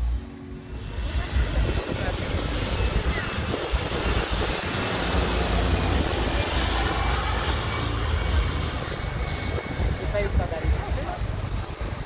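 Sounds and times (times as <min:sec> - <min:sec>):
propeller plane droning overhead: 0:00.0 - 0:12.0.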